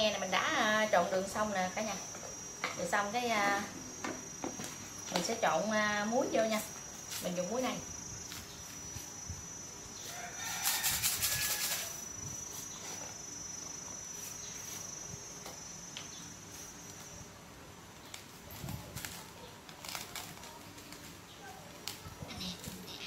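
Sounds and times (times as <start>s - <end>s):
high-pitched whine: 0.0s - 17.6s
rooster crowing: 10.0s - 12.1s.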